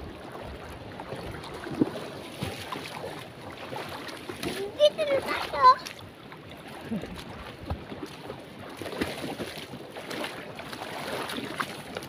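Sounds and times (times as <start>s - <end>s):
seawater sloshing and splashing: 0.0s - 12.0s
footsteps splashing in water: 0.2s - 12.0s.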